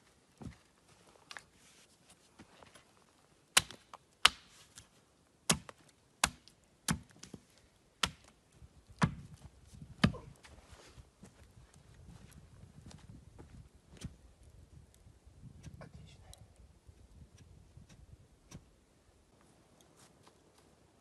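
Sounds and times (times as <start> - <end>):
axe chopping wood: 3.6 - 4.5, 5.5 - 7.2, 8.0 - 8.3, 9.0 - 9.3, 10.0 - 10.3.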